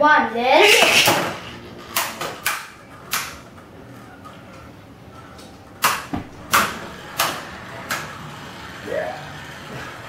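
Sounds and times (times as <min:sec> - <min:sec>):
spinning tops whirring: 0:00.5 - 0:02.8.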